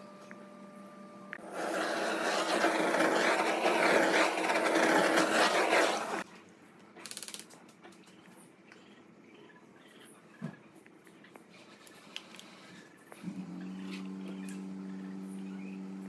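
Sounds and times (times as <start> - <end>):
power tool working on wood: 1.4 - 6.2.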